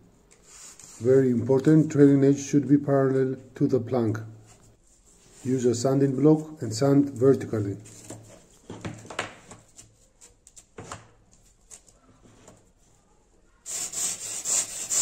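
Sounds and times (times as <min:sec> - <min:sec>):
sanding block tapping: 0:13.7 - 0:15.0
sandpaper rasping: 0:13.7 - 0:15.0.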